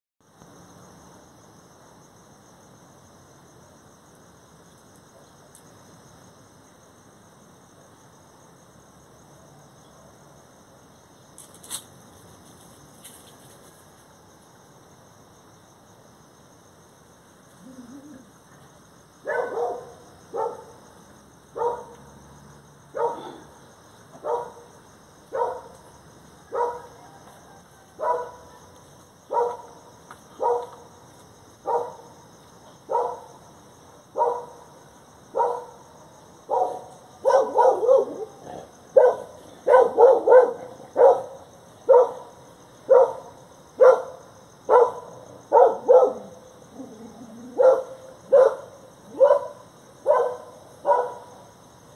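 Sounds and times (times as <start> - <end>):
dog barking: 19.2 - 20.8, 21.6 - 22.0, 22.9 - 23.5, 24.2 - 24.7, 25.3 - 25.8, 26.5 - 27.2, 28.0 - 28.7, 29.3 - 29.7, 30.4 - 30.8, 31.6 - 32.1, 32.9 - 33.3, 34.2 - 34.6, 35.3 - 35.8, 36.5 - 42.3, 42.9 - 51.4.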